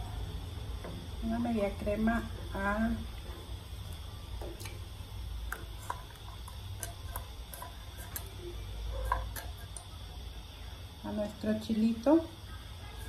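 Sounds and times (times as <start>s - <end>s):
steady low hum: 0.0s - 13.0s
spatula clicking and tapping: 3.9s - 10.0s.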